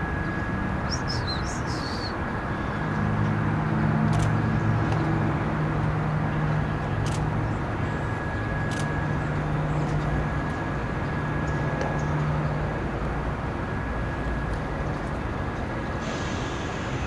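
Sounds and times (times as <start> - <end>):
faint high whine: 0.0 - 3.0, 6.3 - 17.0
low hum: 0.0 - 17.0.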